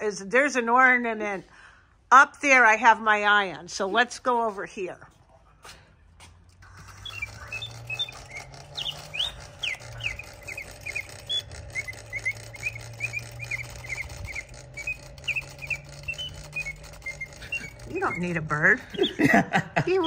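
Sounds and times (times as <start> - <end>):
steady low hum: 0.0 - 20.0
mechanical bird chirping: 6.6 - 20.0.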